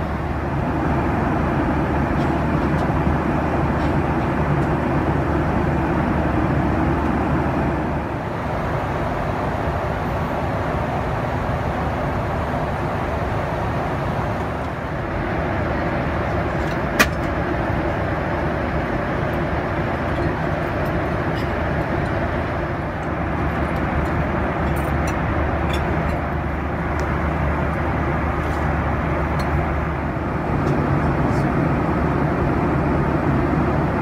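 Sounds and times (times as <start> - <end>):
airplane cabin noise: 0.0 - 34.0.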